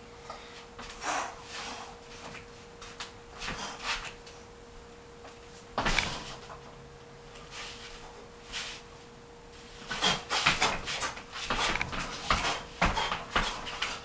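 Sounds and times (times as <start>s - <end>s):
faint steady hum: 0.0s - 14.0s
feet stamping on wooden floor: 10.4s - 13.9s.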